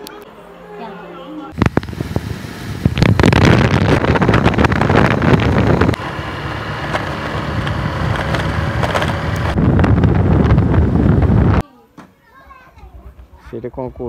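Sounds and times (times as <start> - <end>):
wind buffeting microphone: 1.6 - 11.6.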